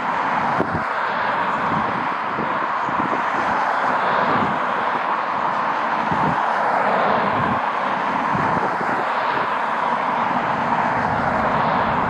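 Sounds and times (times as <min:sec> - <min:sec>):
wind buffeting microphone: 0:00.2 - 0:09.7, 0:10.3 - 0:12.0.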